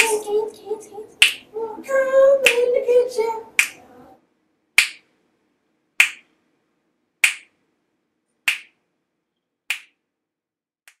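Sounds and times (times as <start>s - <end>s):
sharp snaps: 1.2s - 1.5s, 2.4s - 2.7s, 3.5s - 3.8s, 4.8s - 5.1s, 6.0s - 6.4s, 7.2s - 7.6s, 8.3s - 8.8s, 9.7s - 10.0s.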